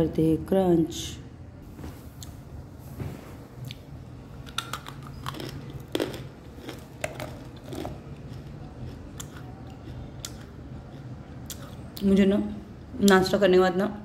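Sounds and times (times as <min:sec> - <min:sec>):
chewing crunchy clay: 0:04.4 - 0:11.9.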